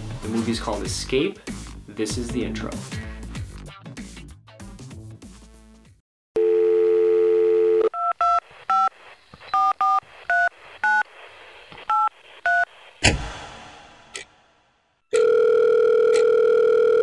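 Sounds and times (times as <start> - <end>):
music: 0.0 - 6.0
telephone dial tone: 6.4 - 8.1, 15.1 - 17.0
touch-tone dialling beeps: 6.4 - 8.9, 9.5 - 11.0, 15.2 - 17.0.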